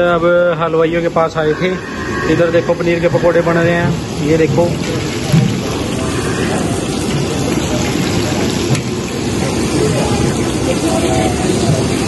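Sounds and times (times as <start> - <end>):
food deep-frying in hot oil: 0.0 - 12.0.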